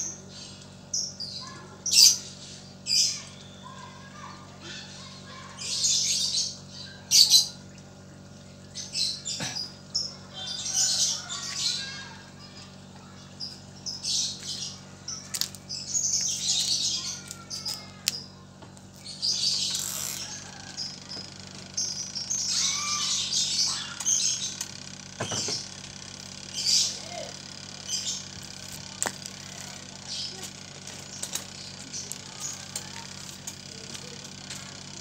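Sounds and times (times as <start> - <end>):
small birds twittering: 0.0 - 35.0
sharp clicks and knocks: 24.0 - 25.8.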